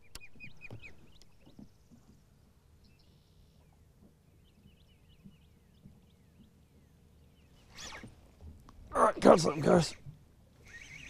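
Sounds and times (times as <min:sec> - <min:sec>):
wild birds chirping: 0:00.0 - 0:11.0
buzzy bird trill: 0:10.6 - 0:11.0.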